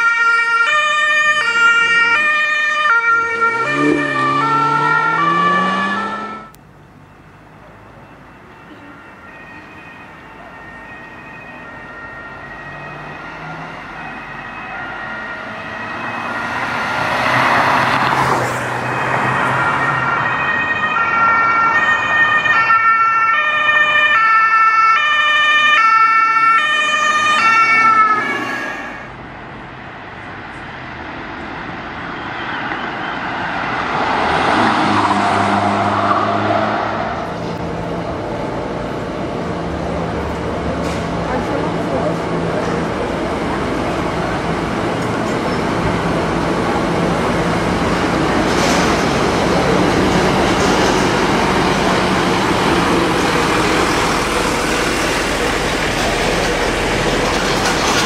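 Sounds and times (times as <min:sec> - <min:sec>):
two-tone emergency siren: 0:00.0 - 0:29.2, 0:32.1 - 0:37.4
car approaching: 0:01.5 - 0:08.9, 0:10.0 - 0:20.6, 0:25.6 - 0:58.0
vehicle rushing past: 0:03.0 - 0:06.5, 0:12.6 - 0:20.7, 0:32.6 - 0:38.8.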